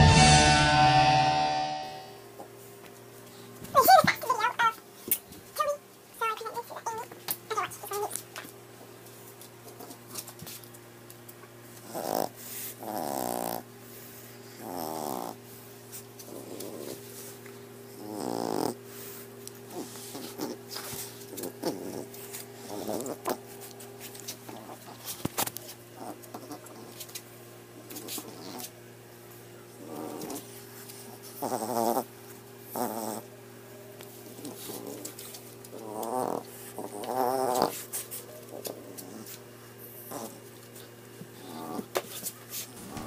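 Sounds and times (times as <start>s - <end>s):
dog grumbling and whining: 11.8s - 13.7s, 14.5s - 15.4s, 16.2s - 17.1s, 17.9s - 18.8s, 19.7s - 23.4s, 26.0s - 27.0s, 27.9s - 28.7s, 29.8s - 33.3s, 34.2s - 39.4s, 40.0s - 40.5s, 41.4s - 42.0s
steady low hum: 42.4s - 43.0s.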